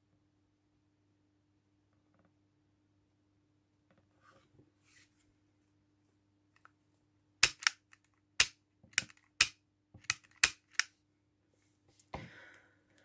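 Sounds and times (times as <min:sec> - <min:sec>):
soft rustle: 0:04.0 - 0:05.4
pistol trigger clicks: 0:07.4 - 0:10.9.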